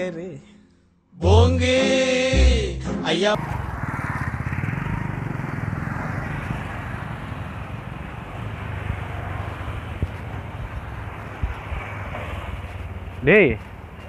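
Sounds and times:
street traffic: 0:00.0 - 0:14.0
motorcycle engine running: 0:03.4 - 0:11.6.

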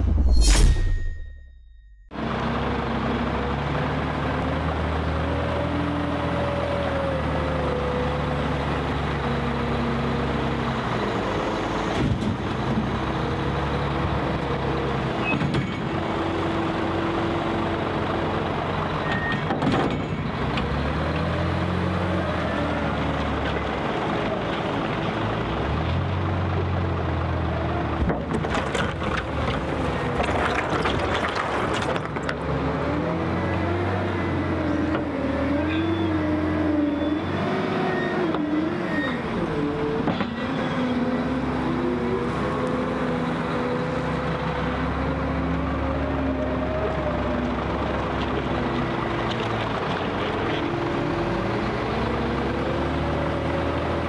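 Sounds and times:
wheel loader diesel engine revving: 0:02.2 - 0:15.2, 0:20.2 - 0:28.0, 0:32.4 - 0:54.0
bucket knocks and clatter: 0:28.1 - 0:32.4.

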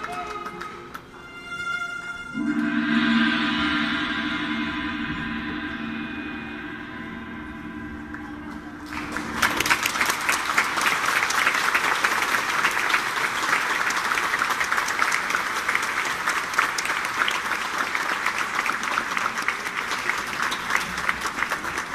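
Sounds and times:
audience applauding: 0:00.0 - 0:01.2, 0:08.8 - 0:21.9
held music notes: 0:00.0 - 0:11.4.

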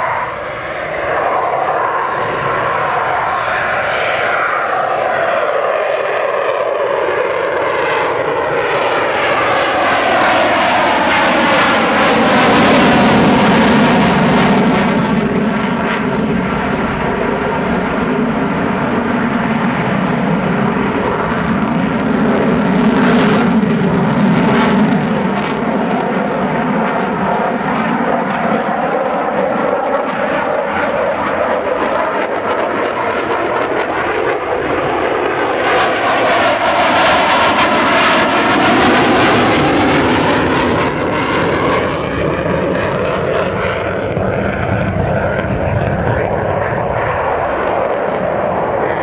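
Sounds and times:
jet engine roar flypast: 0:00.0 - 0:49.0.

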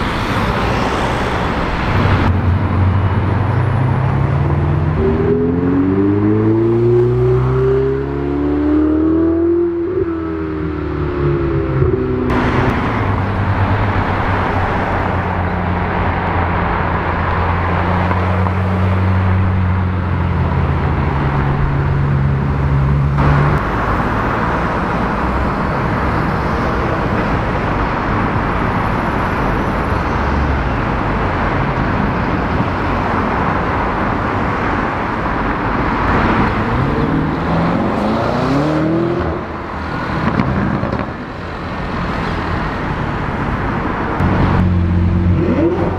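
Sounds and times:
road noise: 0:00.0 - 0:45.9
car engine revving: 0:00.4 - 0:15.2, 0:35.8 - 0:41.3, 0:43.6 - 0:45.9
car engine low note: 0:02.2 - 0:13.8.

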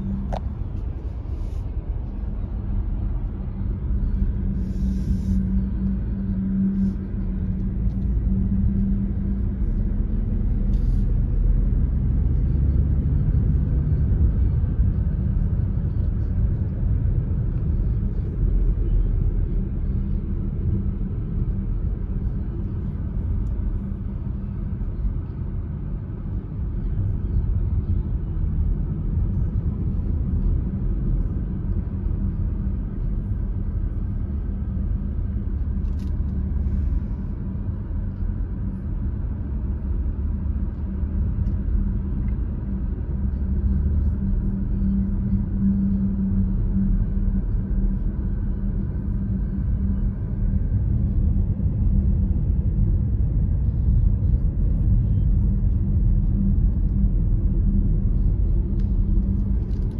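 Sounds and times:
car interior road rumble: 0:00.0 - 0:59.9.

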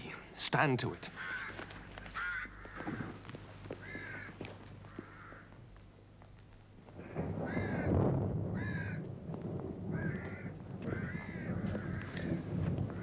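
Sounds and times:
crow cawing: 0:01.1 - 0:05.6, 0:07.0 - 0:07.9, 0:08.5 - 0:09.1, 0:09.9 - 0:13.0.

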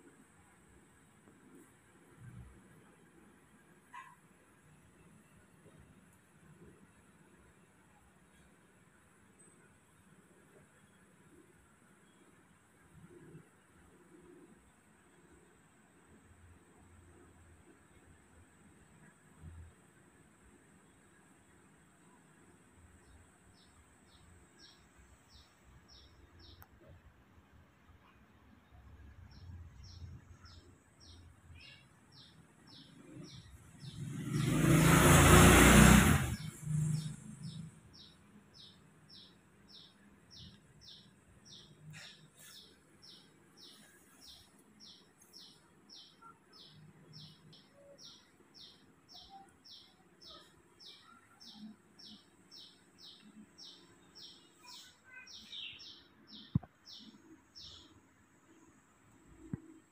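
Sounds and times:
bird chirping: 0:20.8 - 0:27.0, 0:28.0 - 0:59.9
loud rushing noise: 0:34.2 - 0:36.5.

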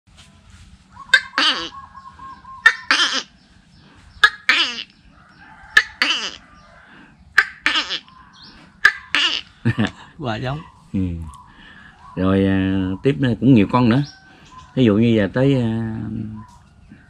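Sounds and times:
man imitating animal call: 0:01.1 - 0:01.9, 0:02.6 - 0:03.4, 0:04.2 - 0:04.9, 0:05.8 - 0:06.5, 0:07.4 - 0:08.2, 0:08.8 - 0:09.9.

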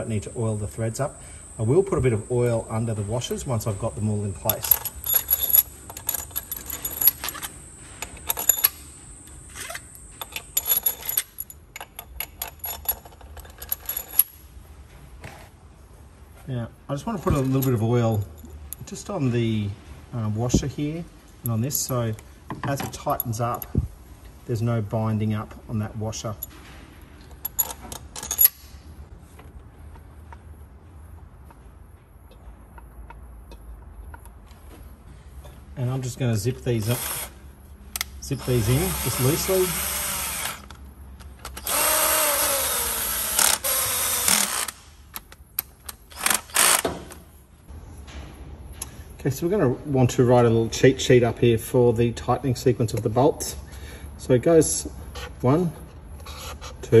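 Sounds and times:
insect drone: 0:00.0 - 0:05.6
metal bolts clinking: 0:02.7 - 0:14.4, 0:26.4 - 0:28.8.

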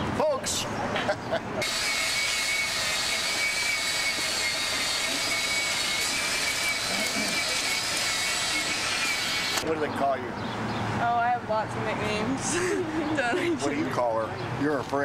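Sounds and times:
pressure washer spraying: 0:01.6 - 0:09.6.

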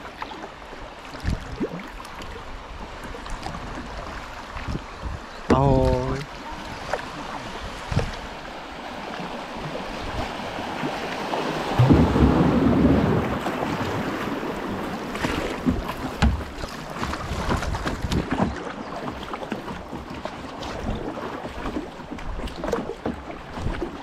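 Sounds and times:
sharp water splashes: 0:00.0 - 0:02.4, 0:05.6 - 0:24.0
river water rushing and splashing: 0:00.0 - 0:24.0
wind buffeting microphone: 0:03.4 - 0:08.5, 0:09.2 - 0:18.6.

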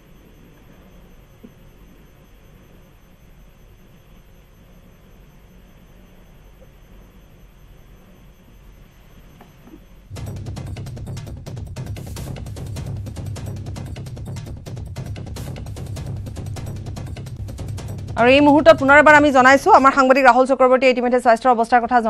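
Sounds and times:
faint steady hiss: 0:00.0 - 0:10.1
news music with drum hits: 0:10.1 - 0:20.2
high-pitched tone: 0:17.0 - 0:20.4.

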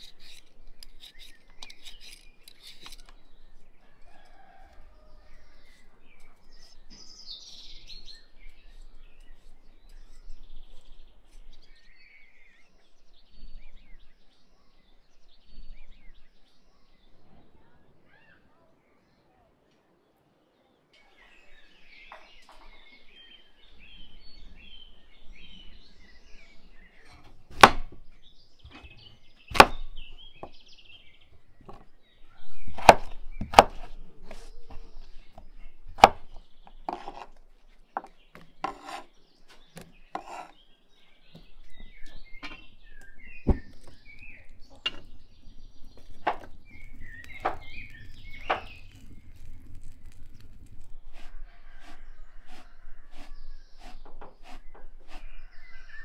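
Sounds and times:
small birds chirping: 0:00.0 - 0:56.0
chopping knocks on wood: 0:27.6 - 0:28.0, 0:29.5 - 0:30.6, 0:43.5 - 0:43.9.

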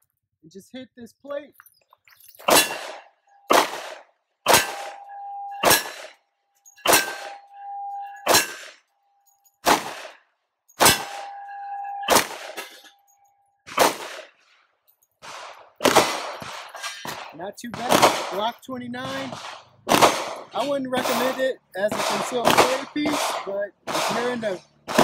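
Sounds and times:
steel plate clanging and ringing: 0:02.2 - 0:03.5, 0:04.5 - 0:09.6, 0:10.7 - 0:13.4
pistol shots: 0:02.4 - 0:06.2, 0:06.8 - 0:08.8, 0:09.6 - 0:10.2, 0:10.8 - 0:12.8, 0:13.6 - 0:14.4, 0:15.2 - 0:25.0.

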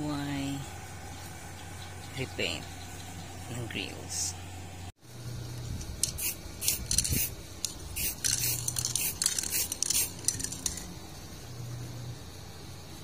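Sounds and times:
spray paint can hissing: 0:05.9 - 0:11.0.

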